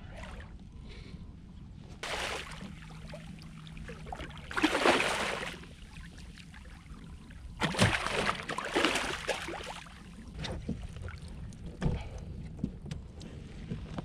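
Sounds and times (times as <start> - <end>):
low steady rumble: 0.0 - 14.0
fish splashing water: 2.0 - 6.8, 7.6 - 10.1.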